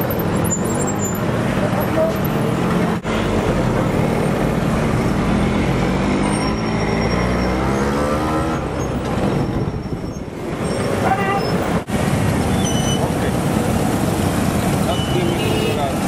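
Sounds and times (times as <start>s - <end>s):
engine revving up: 5.2s - 8.7s.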